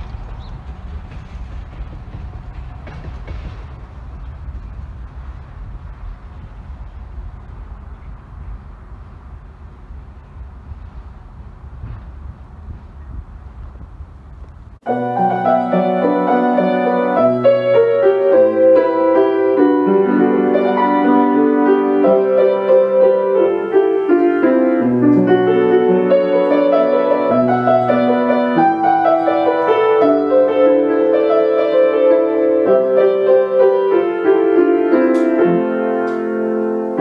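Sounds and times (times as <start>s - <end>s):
piano music: 14.8s - 37.0s.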